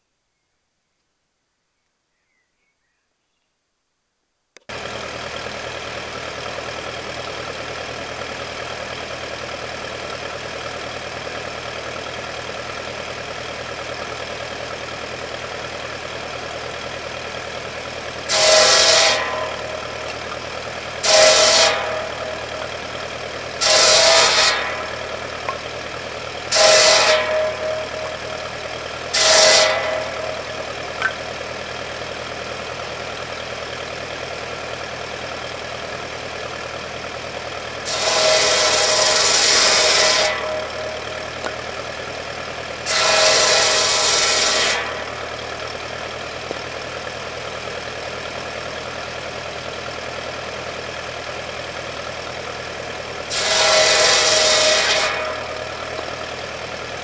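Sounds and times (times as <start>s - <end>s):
tractor engine running: 4.5s - 57.0s
saw cutting through branch: 4.7s - 33.0s, 37.6s - 48.0s, 52.0s - 57.0s
circular saw blade spinning: 4.7s - 34.9s, 36.2s - 49.2s, 52.4s - 57.0s.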